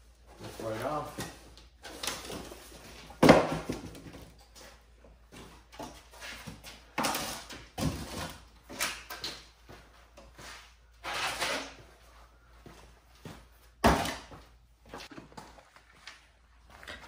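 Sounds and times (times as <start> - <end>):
cardboard thump: 3.2 - 4.2.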